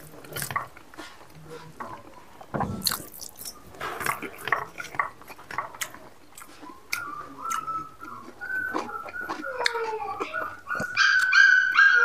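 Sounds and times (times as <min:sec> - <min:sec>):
man chewing and lip smacking: 0:02.8 - 0:11.4.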